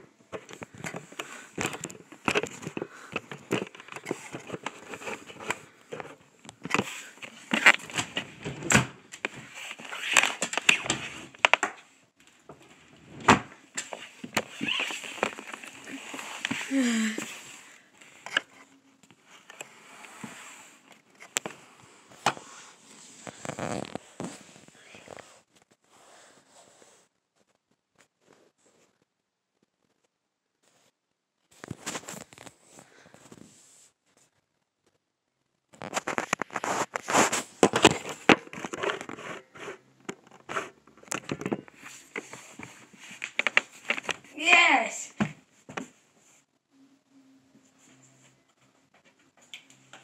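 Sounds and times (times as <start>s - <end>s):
phone being handled: 0.3s - 11.8s, 13.4s - 17.3s, 18.2s - 19.7s, 35.8s - 44.3s.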